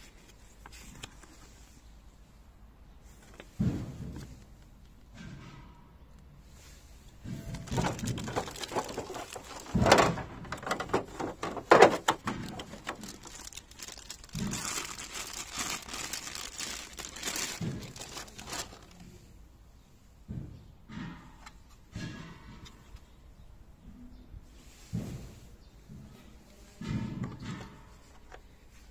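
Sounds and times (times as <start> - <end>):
plastic bag crinkling: 7.5 - 19.1.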